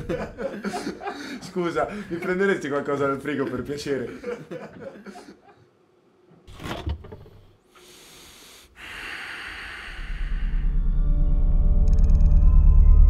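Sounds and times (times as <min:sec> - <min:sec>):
steady hiss: 0:07.7 - 0:10.6.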